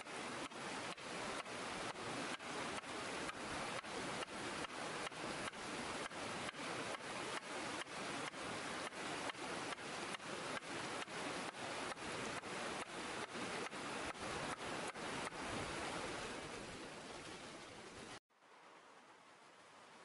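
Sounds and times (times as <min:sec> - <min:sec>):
river water rushing: 0:00.0 - 0:20.0.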